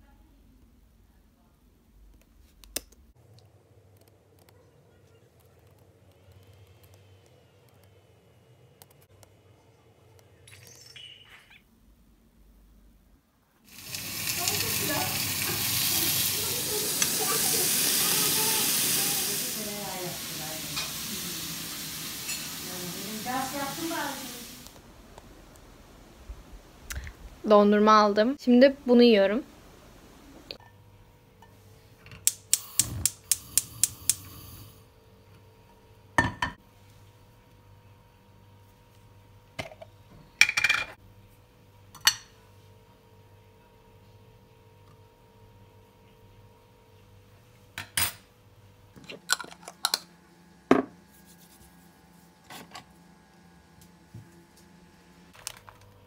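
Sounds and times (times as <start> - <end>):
loud steady hiss: 13.7 - 27.5, 32.3 - 34.8.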